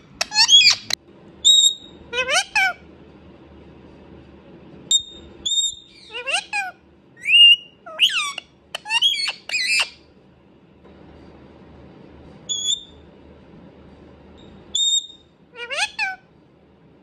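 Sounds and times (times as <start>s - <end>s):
parakeet calling: 0.2s - 2.8s, 4.9s - 10.0s, 12.5s - 13.0s, 14.7s - 16.2s.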